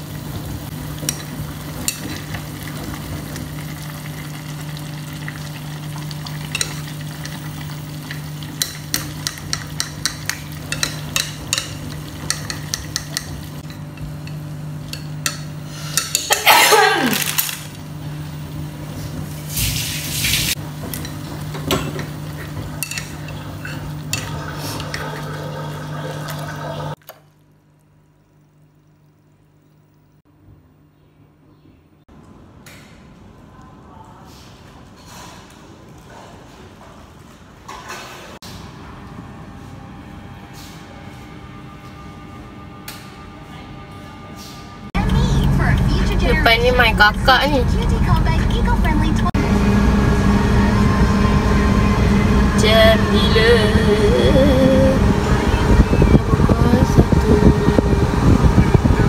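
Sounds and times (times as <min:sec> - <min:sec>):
chopsticks clicking against pan: 0:08.6 - 0:13.4
steady low hum: 0:38.6 - 0:59.0.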